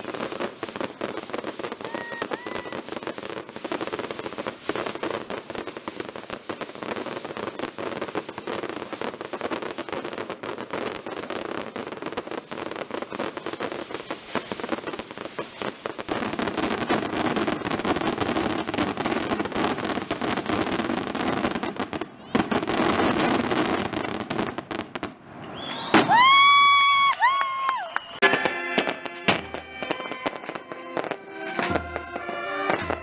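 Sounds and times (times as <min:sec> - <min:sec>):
firecrackers crackling: 0:00.0 - 0:33.0.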